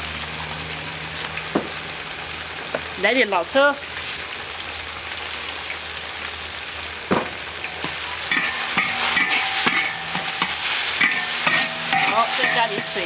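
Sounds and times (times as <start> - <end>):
food sizzling in a wok: 0.0 - 13.0
metal spatula scraping wok: 7.7 - 13.0.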